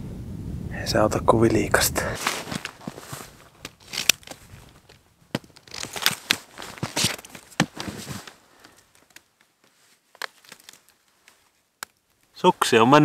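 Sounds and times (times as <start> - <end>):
snow crunching: 2.0 - 8.9
ski binding clicks: 2.2 - 12.3.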